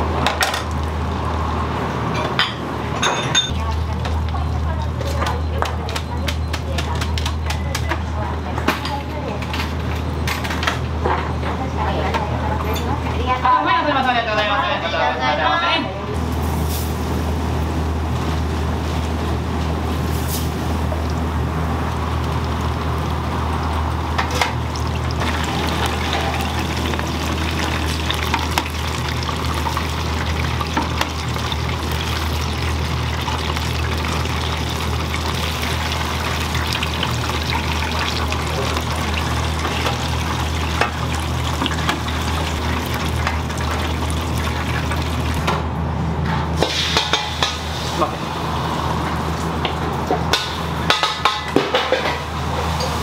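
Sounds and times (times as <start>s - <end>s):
running and pouring water: 20.8s - 45.5s.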